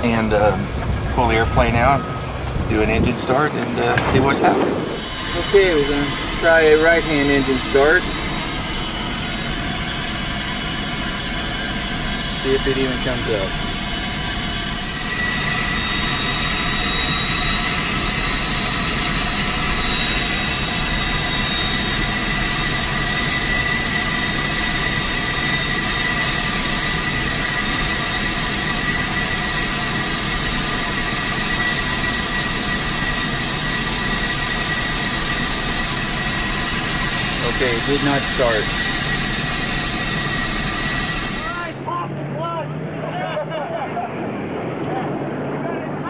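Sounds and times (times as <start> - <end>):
jet engine idling whine: 0.0 - 46.0.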